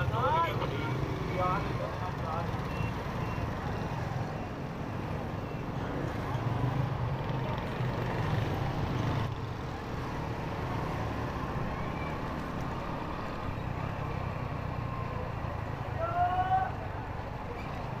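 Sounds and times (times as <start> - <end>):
street traffic noise: 0.0 - 18.0.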